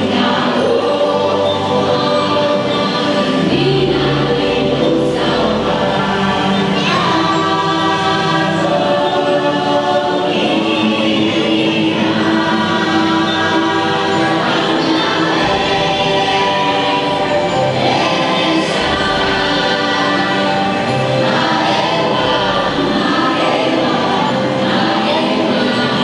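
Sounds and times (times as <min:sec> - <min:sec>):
choir singing long held notes: 0:00.0 - 0:26.0
soundtrack music: 0:00.0 - 0:26.0.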